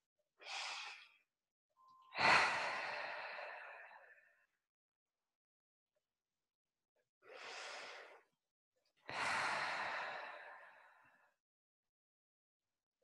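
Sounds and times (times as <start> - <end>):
woman breathing deeply: 2.1 - 4.3, 9.1 - 11.2.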